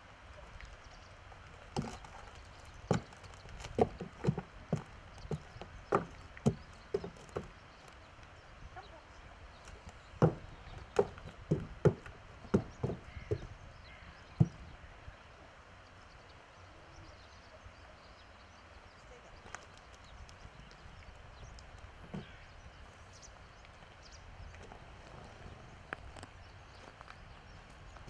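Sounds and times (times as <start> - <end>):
hooves knocking on wooden pallets: 1.7 - 8.0, 9.7 - 13.6, 14.4 - 14.7, 22.0 - 22.5.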